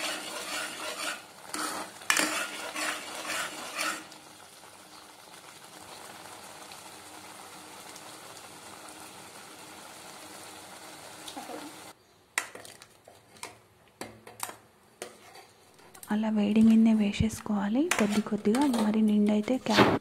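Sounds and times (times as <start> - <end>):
thick mixture bubbling in a pan: 0.0 - 12.0.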